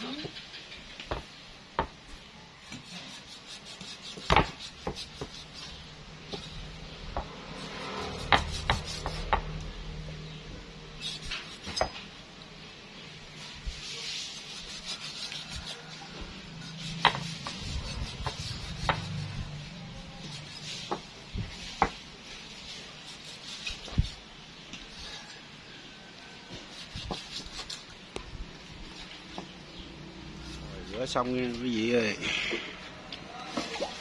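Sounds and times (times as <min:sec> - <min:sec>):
cleaver scraping and slicing meat: 0:02.5 - 0:12.1, 0:13.4 - 0:31.8.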